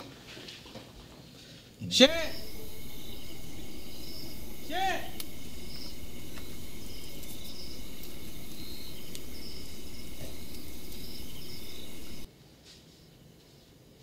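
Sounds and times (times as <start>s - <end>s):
insects chirping in trills: 1.9s - 12.3s
steady low rumble: 1.9s - 12.3s.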